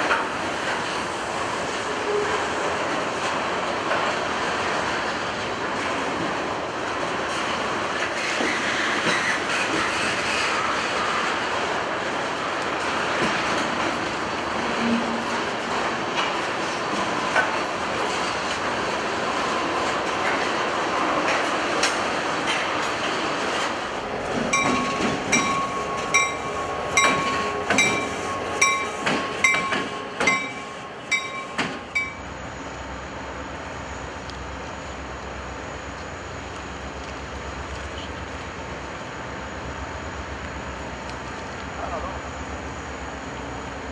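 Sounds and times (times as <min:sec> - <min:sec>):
distant train rumble: 0:00.0 - 0:43.9
train wheels on rails: 0:00.0 - 0:43.9
bell ringing: 0:24.5 - 0:32.3.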